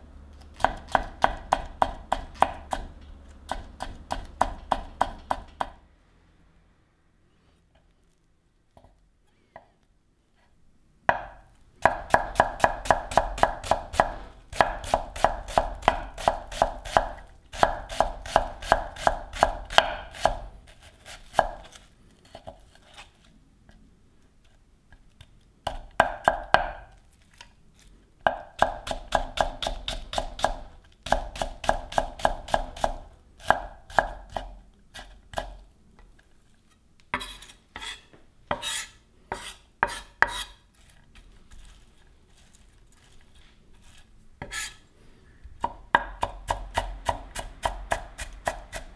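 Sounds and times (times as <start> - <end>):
knife chopping on cutting board: 0.6 - 5.8, 11.1 - 22.6, 28.2 - 35.6, 37.1 - 40.6, 44.4 - 44.8, 45.6 - 48.9.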